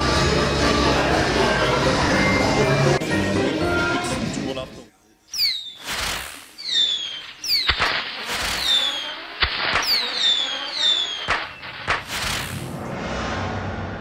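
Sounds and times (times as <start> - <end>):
whistling rockets: 5.3 - 12.8
firework bangs: 5.4 - 12.8
firework whooshes: 5.4 - 14.0.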